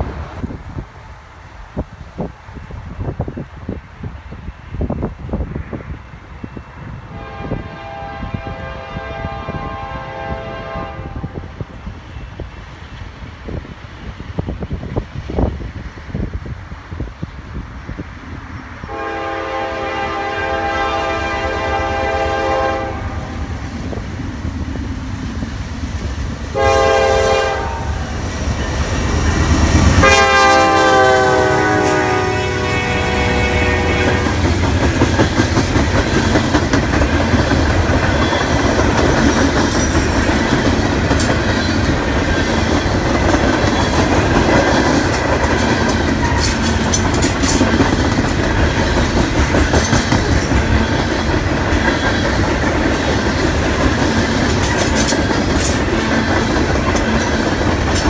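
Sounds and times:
train air horn blasts: 7.1 - 11.5, 18.9 - 24.0, 26.5 - 28.2, 29.8 - 34.6
train wheels clicking over rail joints: 33.8 - 58.0.

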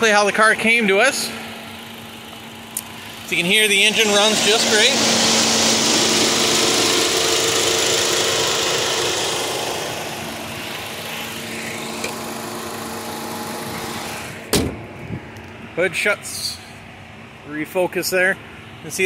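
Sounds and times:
car engine idling: 0.0 - 19.0
car hood shutting thump: 14.4 - 15.0.

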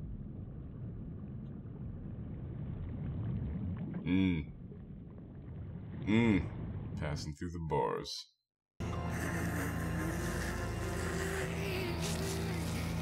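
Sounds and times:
low steady rumbling: 0.0 - 7.2.

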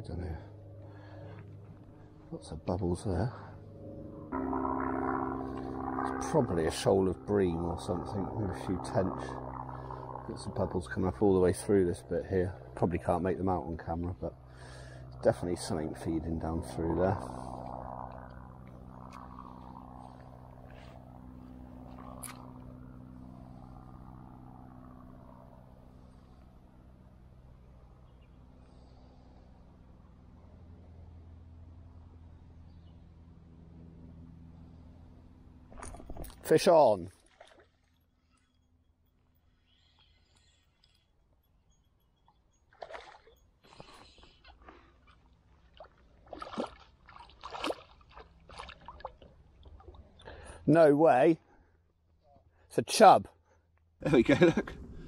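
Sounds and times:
low engine hum: 0.0 - 52.7, 53.6 - 55.0
fish splashing at water surface: 42.7 - 43.4, 45.7 - 49.9.

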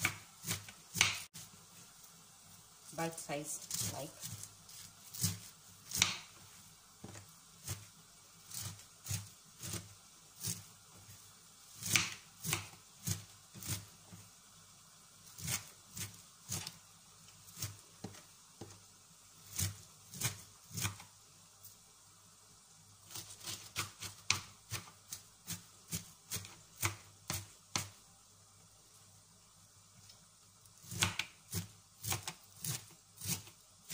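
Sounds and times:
knife chopping on cutting board: 0.0 - 1.3, 3.7 - 6.4, 11.8 - 13.8, 23.1 - 28.0, 30.9 - 33.9.

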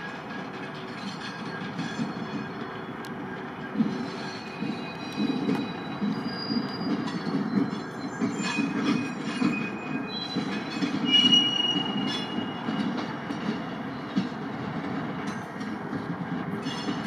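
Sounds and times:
wheel flanges squealing: 0.0 - 14.4
train wheels rumbling on rail: 0.0 - 17.0.

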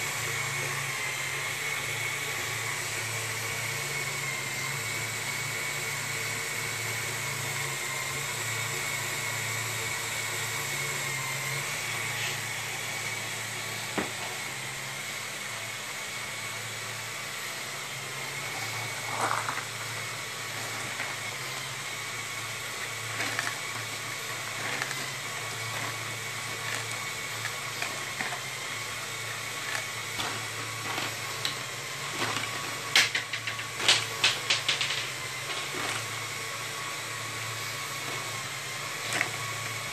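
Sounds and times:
motors and gears whining: 0.0 - 39.9
plastic clicks and clacks: 33.0 - 35.6.

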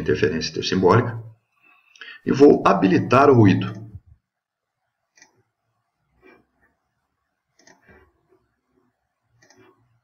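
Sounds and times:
computer mouse clicks: 5.1 - 5.5, 7.5 - 8.1, 9.3 - 10.0.

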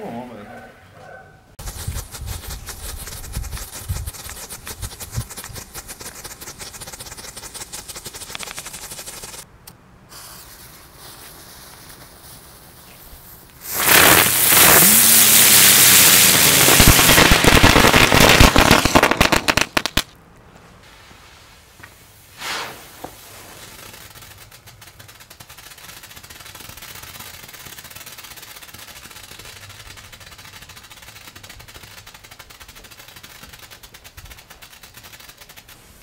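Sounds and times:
firework rapid crackling bangs: 10.2 - 20.2, 22.3 - 35.8
ground fountains hissing and crackling: 10.8 - 19.9.

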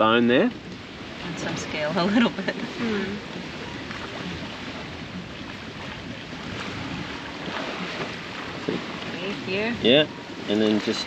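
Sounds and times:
waves washing on shore: 0.0 - 11.0
wind noise on microphone: 0.0 - 11.0.

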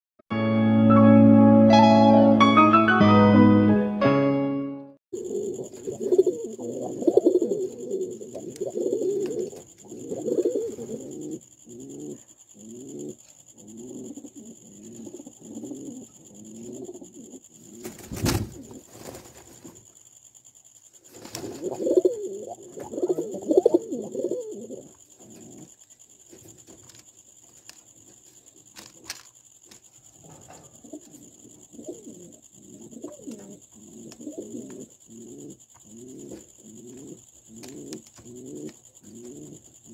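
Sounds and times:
pigeon cooing: 5.2 - 18.9, 21.2 - 25.8, 30.3 - 39.9.

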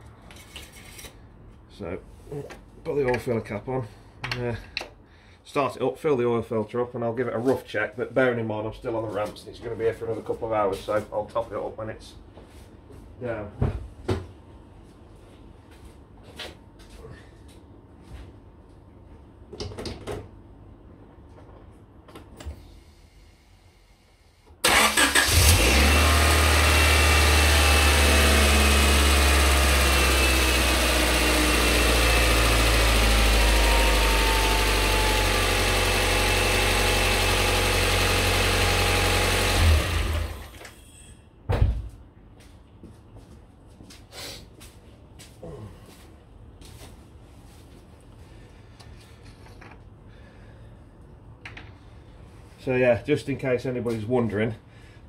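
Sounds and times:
car engine starting: 24.6 - 40.6
car engine idling: 25.1 - 40.5.

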